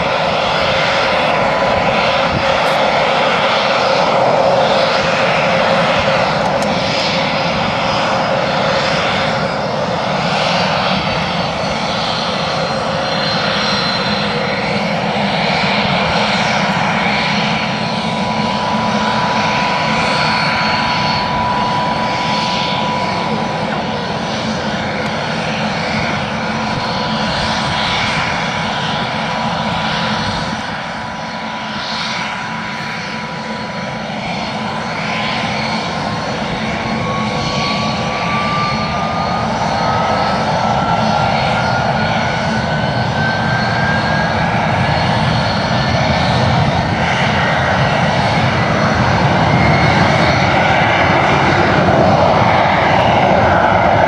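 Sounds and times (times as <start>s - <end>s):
jet engine whine: 0.0s - 54.0s.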